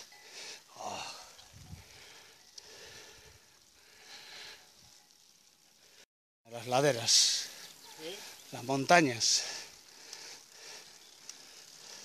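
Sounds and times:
person breathing heavily: 0.1s - 4.7s, 9.4s - 12.0s.

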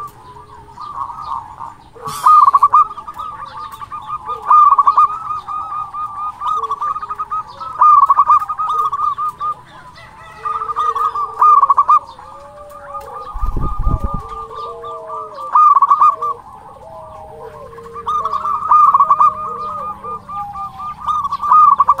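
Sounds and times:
dove cooing trills: 0.0s - 22.0s.

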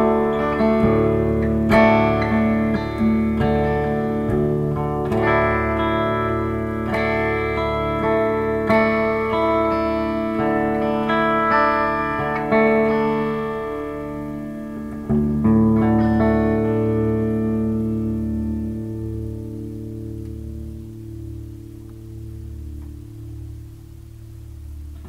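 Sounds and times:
electric guitar chords: 0.0s - 25.0s.

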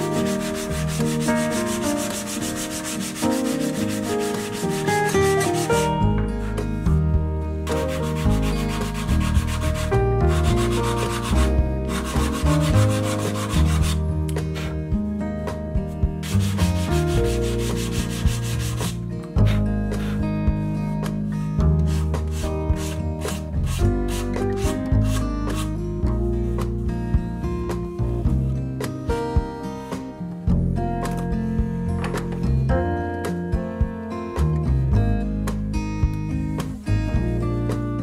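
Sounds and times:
sandpaper rubbing plywood: 0.0s - 6.0s, 7.7s - 14.8s, 16.2s - 20.2s, 21.8s - 25.8s
background music: 0.0s - 38.0s.

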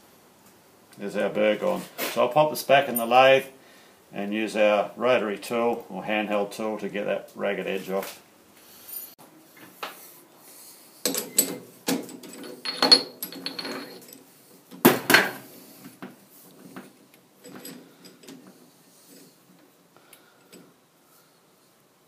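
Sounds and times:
metal parts knocking and clinking: 11.0s - 14.3s, 17.4s - 18.6s.

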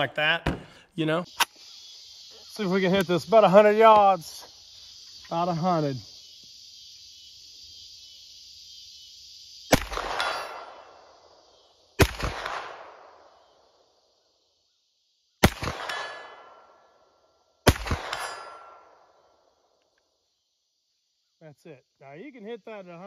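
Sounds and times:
insects trilling: 0.0s - 23.0s
gunshots: 9.7s - 11.0s, 12.0s - 13.2s, 15.4s - 16.7s, 17.6s - 18.9s
steel target clanging: 18.1s - 18.8s.

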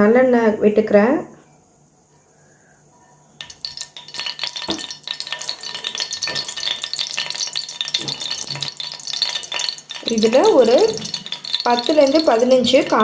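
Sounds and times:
hot oil sizzling and popping: 3.4s - 13.0s.

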